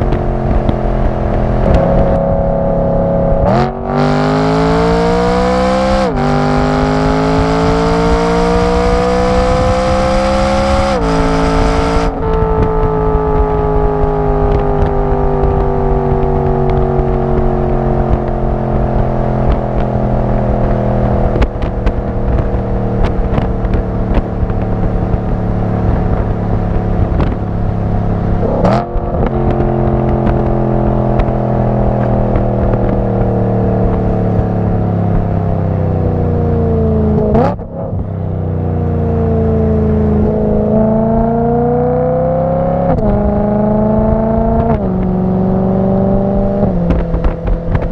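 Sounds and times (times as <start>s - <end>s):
car exhaust revving: 0.0s - 47.9s.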